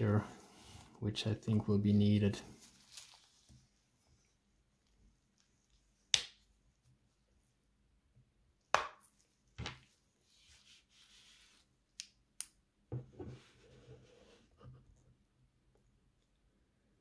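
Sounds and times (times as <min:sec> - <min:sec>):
soft rustle: 0:00.1 - 0:07.5, 0:09.1 - 0:11.8.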